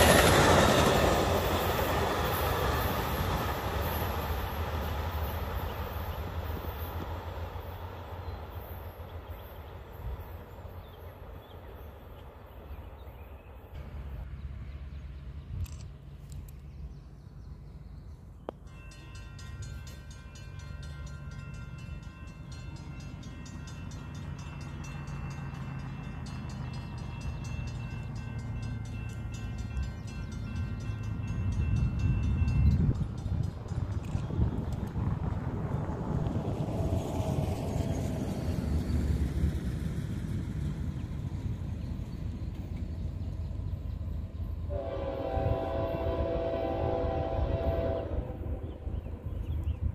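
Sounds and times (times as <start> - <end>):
train rumble approaching: 0.0 - 49.9
crossing bell ringing: 18.6 - 34.3
train horn chord: 44.7 - 48.8.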